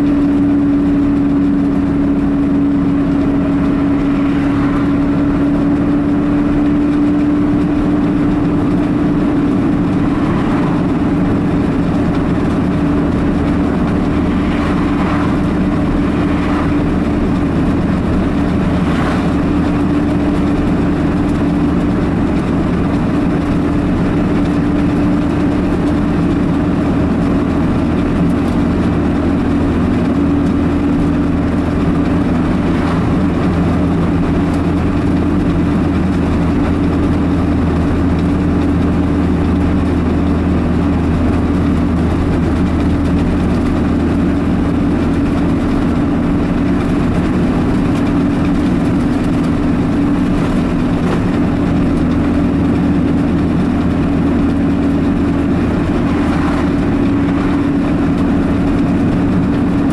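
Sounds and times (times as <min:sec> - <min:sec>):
car engine and tyre drone: 0:00.0 - 0:59.9
passing cars whooshing: 0:01.8 - 0:24.8, 0:30.1 - 0:35.9, 0:52.7 - 0:59.9.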